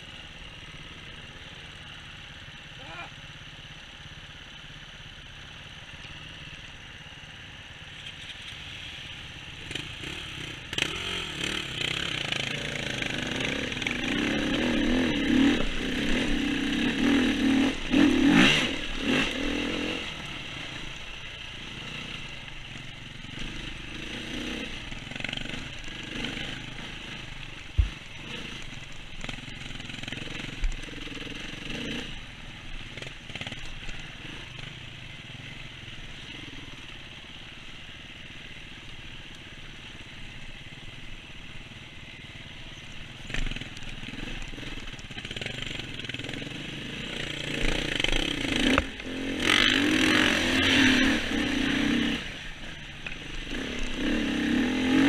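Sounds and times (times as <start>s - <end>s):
dirt bike engine revving: 9.5s - 37.3s, 43.2s - 55.0s
sharp thumps: 27.7s - 28.0s.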